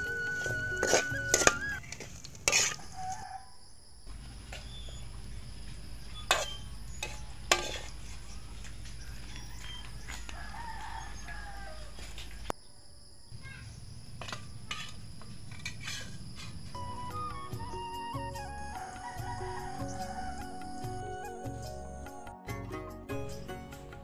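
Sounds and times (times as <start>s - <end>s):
rooster crowing: 2.8s - 3.7s, 8.8s - 12.5s, 18.6s - 21.3s
metal spatula clanking on wok: 6.3s - 7.9s.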